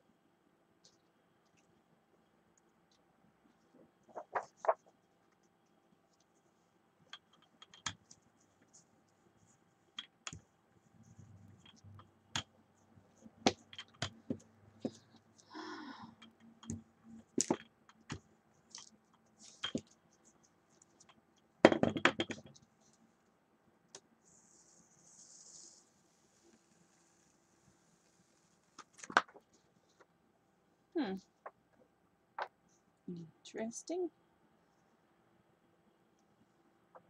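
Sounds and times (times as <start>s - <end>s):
tools clicking and tapping: 13.4s - 15.1s.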